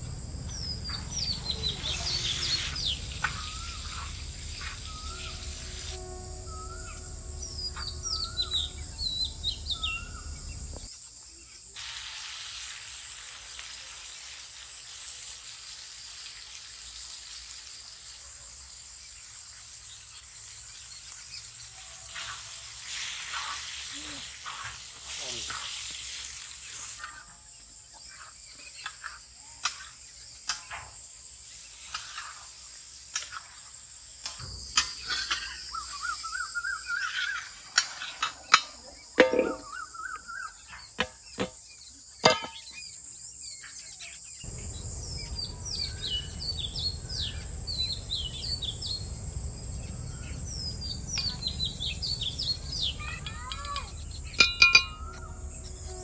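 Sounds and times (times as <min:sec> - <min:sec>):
birds chirping: 0:00.0 - 0:11.7, 0:33.3 - 0:56.0
steady high hiss: 0:00.0 - 0:40.4, 0:42.2 - 0:56.0
metal spatula knocking griddle: 0:39.2 - 0:39.7, 0:42.2 - 0:42.7.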